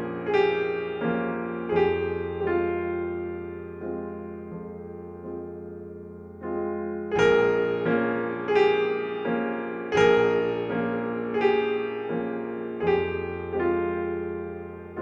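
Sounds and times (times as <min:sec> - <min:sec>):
slow piano notes: 0:00.0 - 0:15.0.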